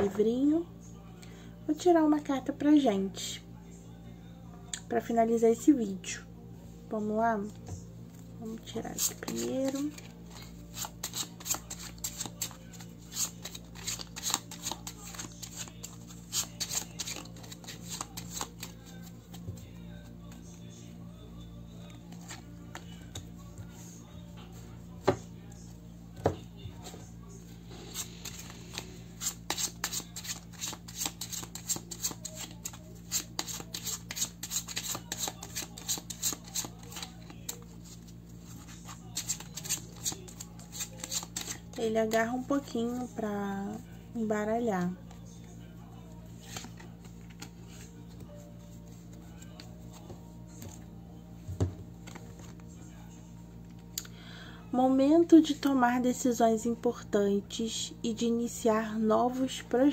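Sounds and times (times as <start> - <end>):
cards being shuffled: 8.9 - 19.6, 22.0 - 23.3, 27.9 - 42.2, 46.3 - 50.8, 52.0 - 52.7.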